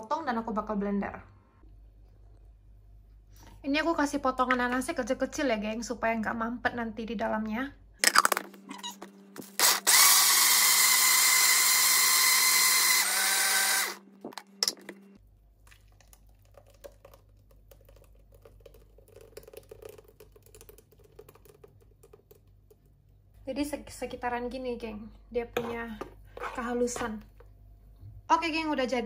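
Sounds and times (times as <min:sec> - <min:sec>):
blender motor running: 0:09.4 - 0:14.5.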